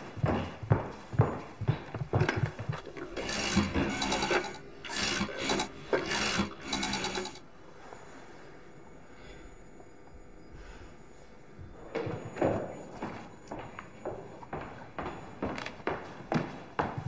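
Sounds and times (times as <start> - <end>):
rotary telephone dial whirring: 3.1 - 7.4.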